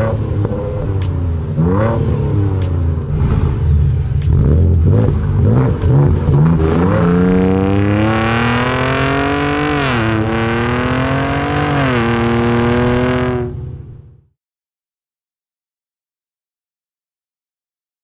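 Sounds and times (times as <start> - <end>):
engine revving: 0.0 - 13.9
engine accelerating and shifting up: 0.0 - 14.2.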